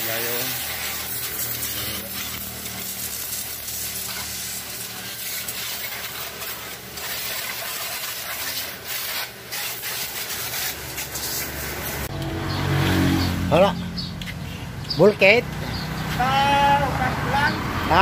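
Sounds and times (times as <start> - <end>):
water spraying onto vehicle: 0.0 - 12.1.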